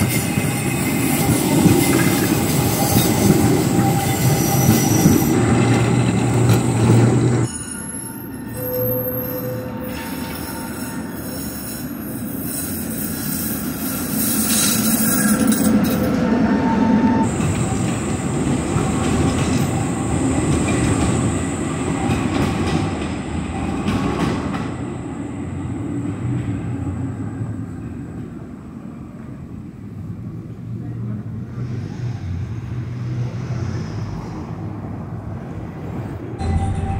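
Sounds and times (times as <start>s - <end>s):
tram wheels squealing on rails: 0.0s - 27.8s
tram wheels rumbling: 0.0s - 36.9s.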